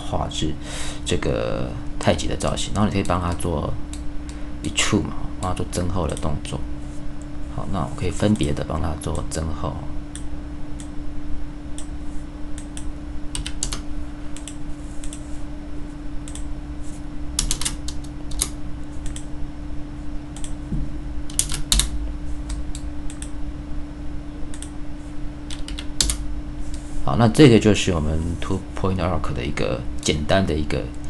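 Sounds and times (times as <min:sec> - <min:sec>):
steady hum: 0:00.0 - 0:31.0
keyboard clicks: 0:12.6 - 0:13.8, 0:14.4 - 0:15.2, 0:17.4 - 0:19.3, 0:21.3 - 0:21.9, 0:25.5 - 0:26.2
computer mouse clicks: 0:14.4 - 0:15.2, 0:16.2 - 0:16.5, 0:17.4 - 0:19.3, 0:20.4 - 0:20.6, 0:21.3 - 0:23.4, 0:24.5 - 0:24.7.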